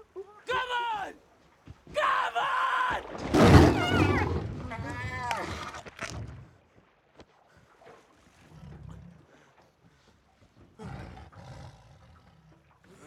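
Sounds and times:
tiger growling: 0:03.2 - 0:06.5, 0:08.3 - 0:09.6, 0:10.6 - 0:13.0.

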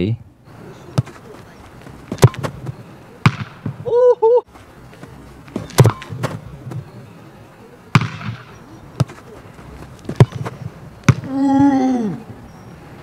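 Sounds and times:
soft ball being kicked: 0:09.9 - 0:11.4.

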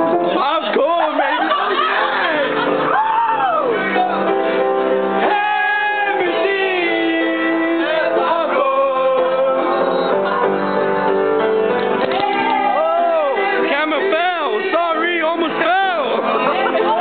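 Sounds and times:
guitar accompaniment: 0:00.0 - 0:17.0
person singing: 0:05.2 - 0:10.6.

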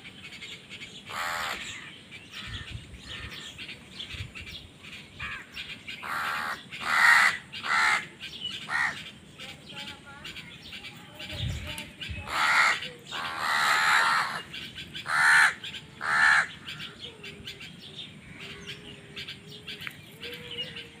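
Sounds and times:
crows cawing: 0:01.1 - 0:03.6, 0:05.2 - 0:09.1, 0:12.3 - 0:17.1.

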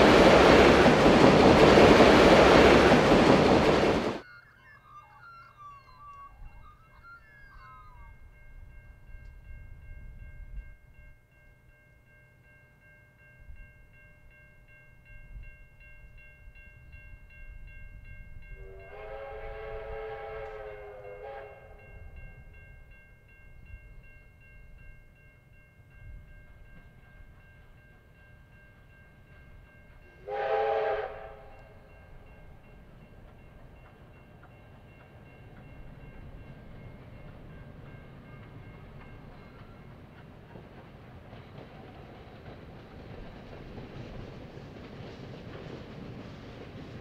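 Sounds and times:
faint low train rumble: 0:00.0 - 0:04.3, 0:06.0 - 0:47.0
train horn blast: 0:18.6 - 0:21.9, 0:30.2 - 0:31.9.

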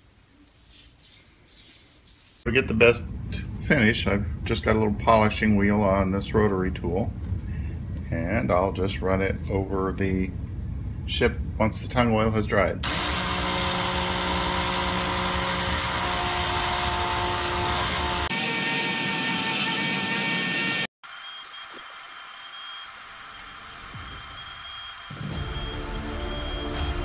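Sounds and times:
rotary tool motor whine: 0:12.8 - 0:27.0.

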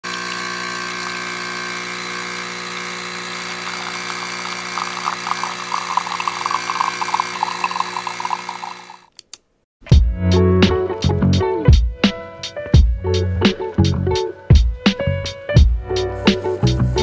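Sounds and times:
coffee machine pump buzzing: 0:00.0 - 0:09.1
crackling and spluttering: 0:02.6 - 0:09.1.

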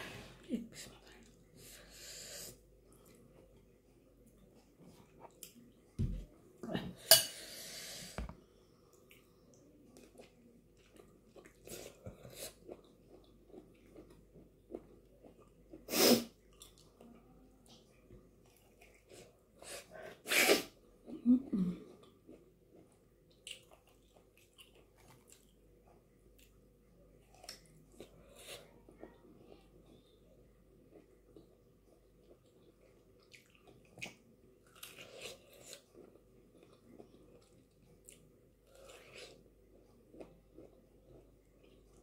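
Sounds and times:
chewing and sucking mouth sounds: 0:22.0 - 0:26.6, 0:30.9 - 0:42.0.

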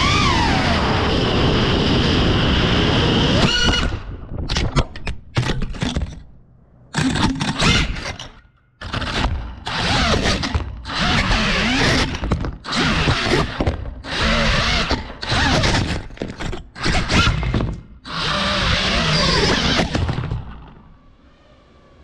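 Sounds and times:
quadcopter motors whining: 0:00.0 - 0:04.0, 0:08.8 - 0:15.9, 0:16.8 - 0:21.3.

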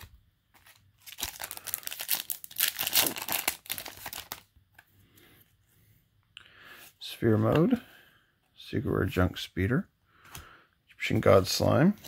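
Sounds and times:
foil wrapper crinkling and tearing: 0:00.6 - 0:04.5.

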